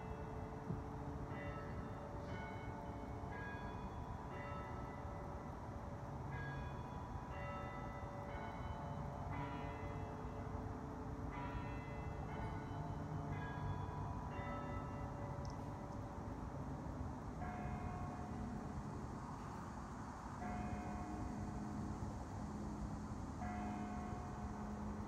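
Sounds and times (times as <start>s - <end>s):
bells ringing: 1.3s - 5.5s, 6.3s - 10.5s, 11.3s - 16.2s.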